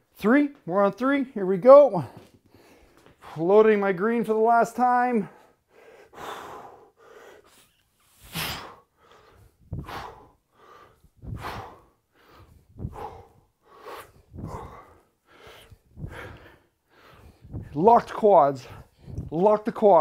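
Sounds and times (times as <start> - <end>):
man breathing forcefully: 5.2 - 19.4.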